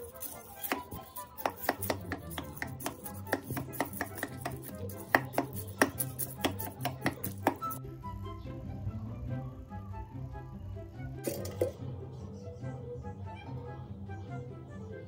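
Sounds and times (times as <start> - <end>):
metal spoon scraping steel bowl: 0.0 - 7.8.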